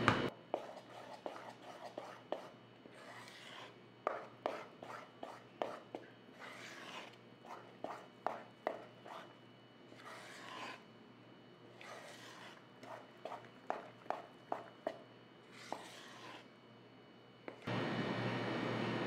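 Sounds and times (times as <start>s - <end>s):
spoon scraping batter: 0.6s - 10.9s, 11.6s - 16.6s.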